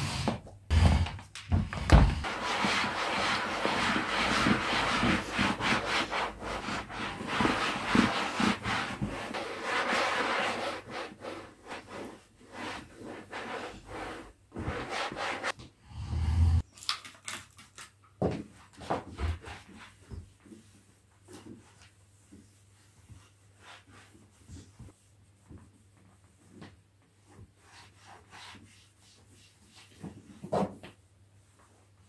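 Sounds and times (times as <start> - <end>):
cloth wiping upholstery: 2.2 - 15.5.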